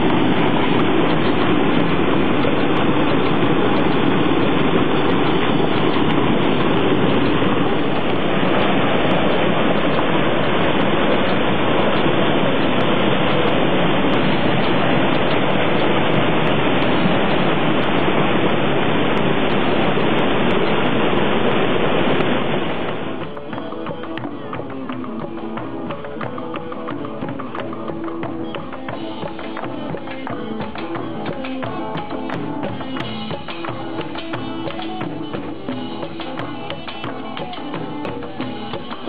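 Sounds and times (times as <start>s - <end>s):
water rushing over rocks: 0.0s - 39.0s
plucked guitar music: 22.8s - 39.0s.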